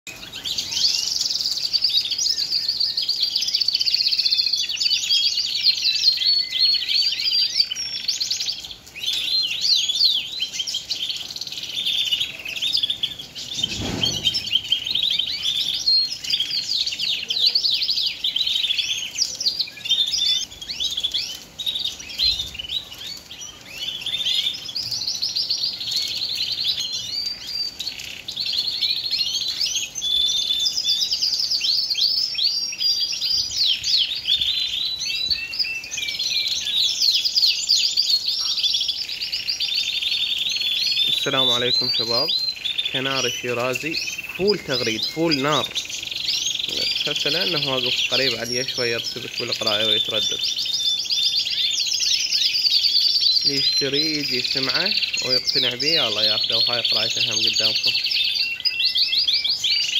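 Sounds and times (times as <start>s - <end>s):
canary singing: 0.1s - 59.9s
low thump: 13.6s - 14.8s.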